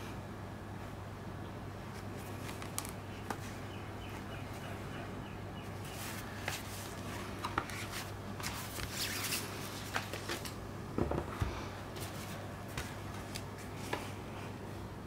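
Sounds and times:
steady low hum: 0.0s - 15.0s
cardboard rustling and scraping: 5.8s - 10.5s.

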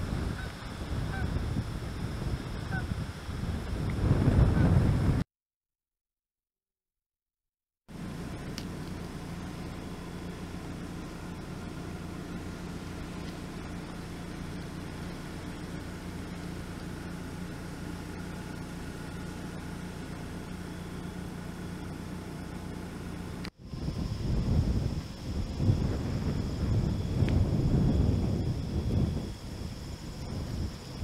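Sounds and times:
low mechanical hum: 0.0s - 5.2s, 7.9s - 31.0s
wind buffeting microphone: 0.0s - 5.2s, 23.6s - 31.0s
steady low-pitched noise: 8.0s - 31.0s.

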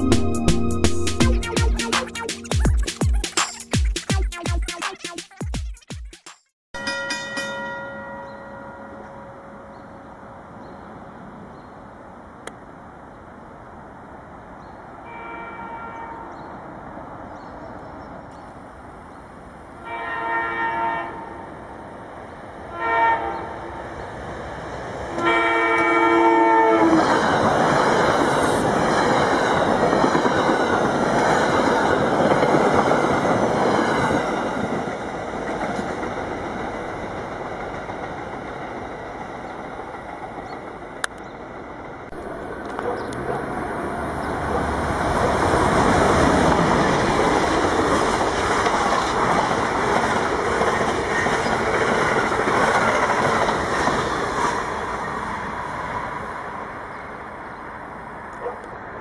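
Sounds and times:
another train approaching: 6.8s - 59.0s
train wheel and rail noise: 6.8s - 59.0s
train horn blasts: 15.0s - 16.4s, 19.8s - 21.5s, 22.7s - 23.7s, 25.2s - 27.1s.

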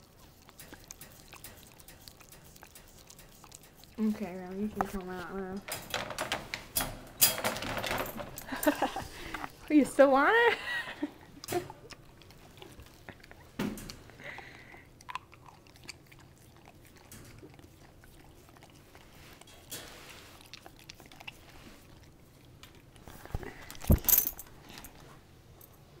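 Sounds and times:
dog licking and chewing lollipop: 0.0s - 5.7s, 11.1s - 23.9s.

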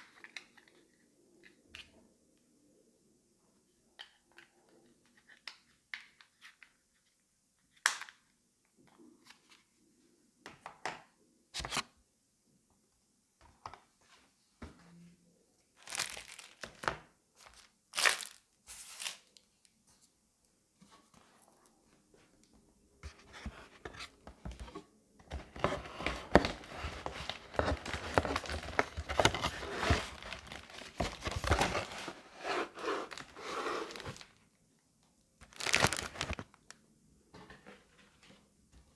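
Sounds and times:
paper and plastic rustling: 15.8s - 19.3s, 23.1s - 34.4s, 35.4s - 36.6s
plastic packaging crinkling: 15.8s - 19.3s, 26.3s - 32.2s, 33.0s - 34.4s, 35.4s - 36.7s.

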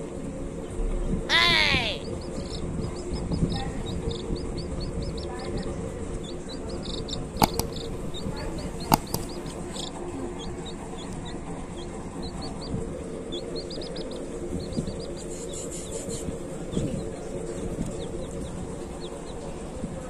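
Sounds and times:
baby chick peeping: 0.6s - 20.0s
sharp clicks: 7.4s - 9.6s.

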